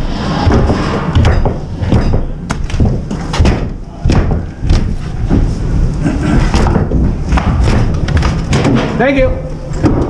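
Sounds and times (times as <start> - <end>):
pole knocking drywall ceiling: 0.5 - 5.5
ceiling pieces falling: 6.4 - 9.2.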